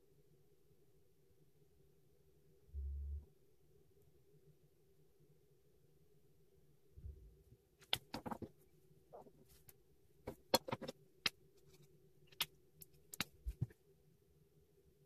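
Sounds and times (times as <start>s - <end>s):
plastic markers clicking and tapping: 10.3s - 11.4s.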